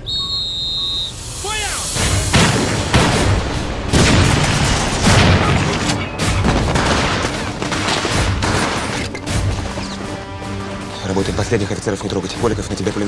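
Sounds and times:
rifle and machine-gun fire: 2.3s - 9.0s.

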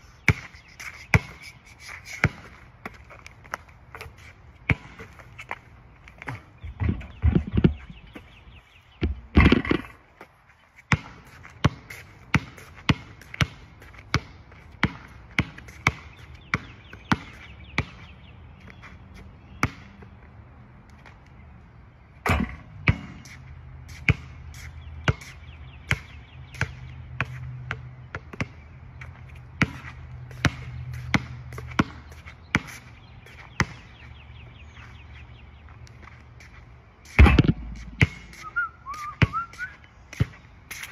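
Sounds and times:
basketball bouncing on hard court: 2.2s - 5.3s, 9.0s - 9.9s, 10.9s - 18.0s, 22.3s - 23.3s, 25.9s - 28.6s, 29.6s - 32.7s, 33.6s - 33.8s, 37.2s - 38.4s.

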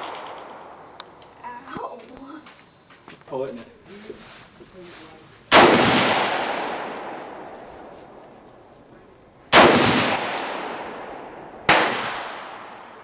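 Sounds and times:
rifle shot with echo: 5.5s - 7.9s, 9.5s - 13.0s.

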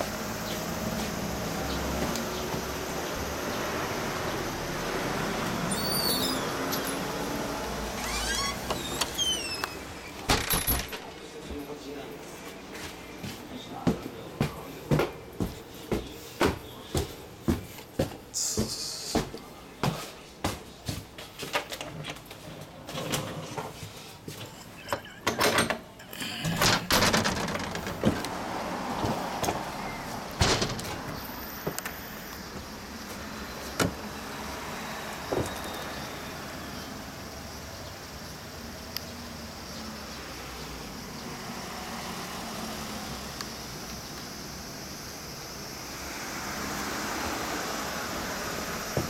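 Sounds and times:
outdoor traffic hum: 0.0s - 49.0s
door opening: 7.7s - 11.3s, 24.6s - 32.0s
footsteps on wooden stairs: 12.7s - 22.3s, 27.4s - 29.8s.

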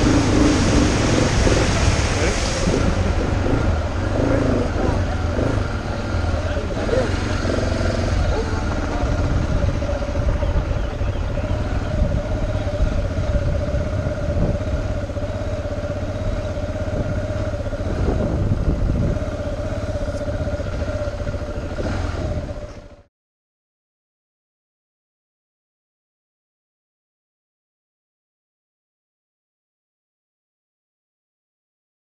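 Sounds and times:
wind rumble on microphone: 0.0s - 23.0s
motorcycle engine running: 0.0s - 23.1s.

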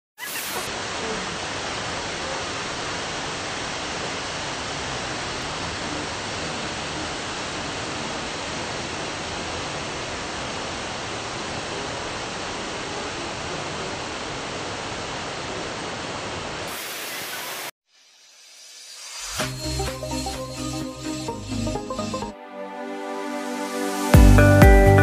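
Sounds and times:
waterfall pouring into pool: 0.2s - 17.7s.

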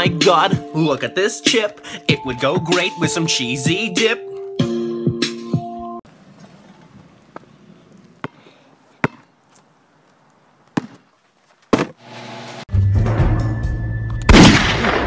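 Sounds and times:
basketball bouncing on concrete: 8.2s - 9.3s, 10.7s - 11.1s.

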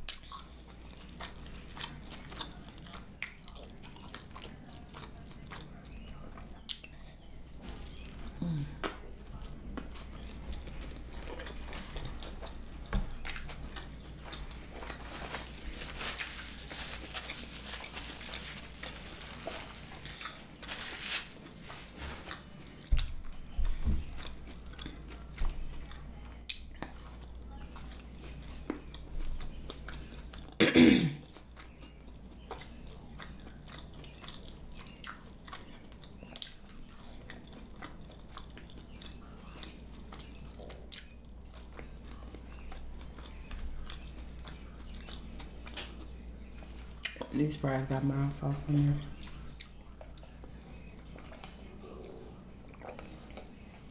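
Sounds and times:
chewing fried food: 0.0s - 30.6s, 31.2s - 53.9s
person humming: 8.4s - 8.8s.

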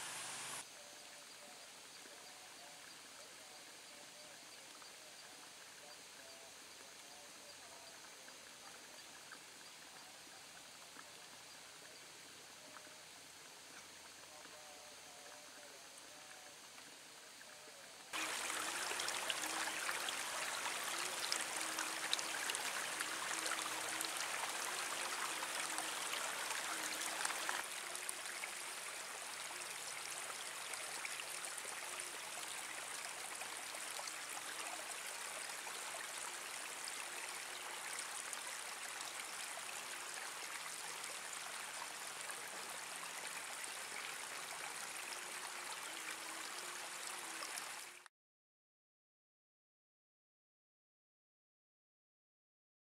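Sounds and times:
babbling stream water splashing: 18.1s - 48.0s.

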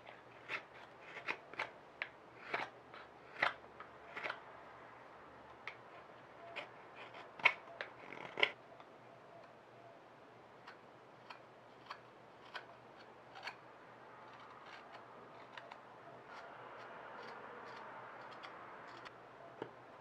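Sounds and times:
soft steady scraping: 5.8s - 8.6s, 10.7s - 19.2s.

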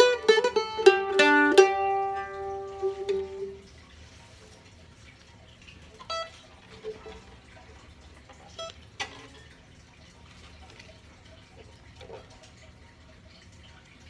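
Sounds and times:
mandolin strings pinging: 0.0s - 3.6s.

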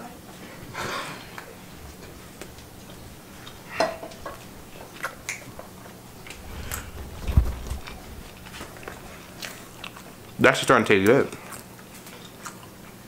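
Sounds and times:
mouth clicks and chewing: 2.4s - 10.4s, 11.3s - 13.0s.

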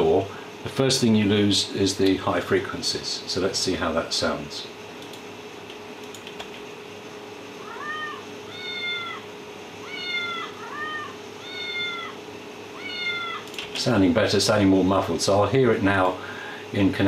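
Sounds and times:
faint steady hum: 0.0s - 17.0s
muffled cat meows: 7.6s - 9.2s, 9.8s - 12.2s, 12.8s - 13.4s.

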